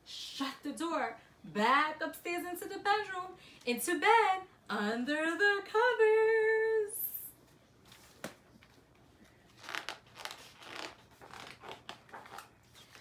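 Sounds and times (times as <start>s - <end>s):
book pages rustling: 7.5s - 13.0s.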